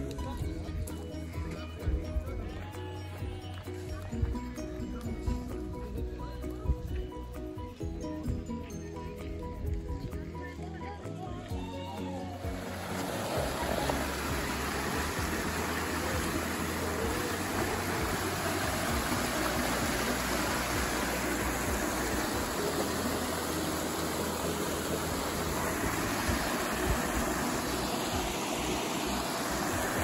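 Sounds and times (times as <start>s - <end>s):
river water rushing over rocks: 12.4s - 30.0s.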